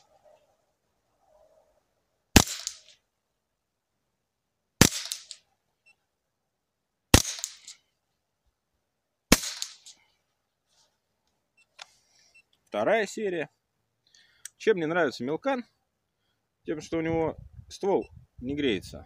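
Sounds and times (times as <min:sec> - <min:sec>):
rifle shots with echo: 0:02.4 - 0:02.9, 0:04.8 - 0:05.4, 0:07.1 - 0:07.8, 0:09.3 - 0:09.9.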